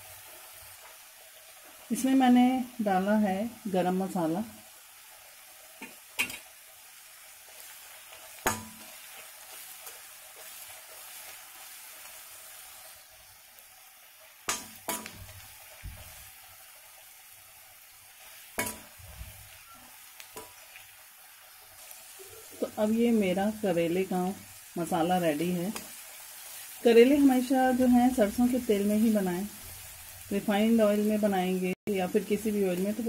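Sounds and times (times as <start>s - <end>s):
spices sizzling in oil: 0.0s - 33.0s
spoon knocking pan side: 5.8s - 6.4s, 8.4s - 8.9s, 14.5s - 15.3s, 18.6s - 19.0s.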